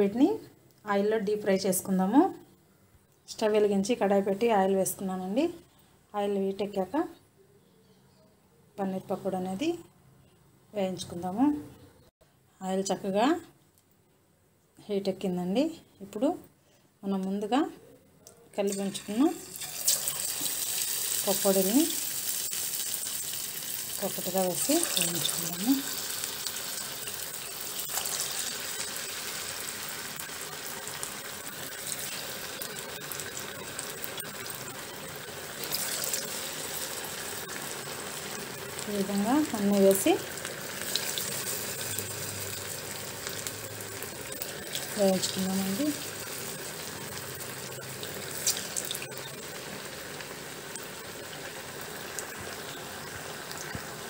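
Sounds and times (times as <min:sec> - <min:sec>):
deep-frying sizzle and bubbling: 0:18.7 - 0:54.0
oil crackling and popping: 0:18.8 - 0:54.0.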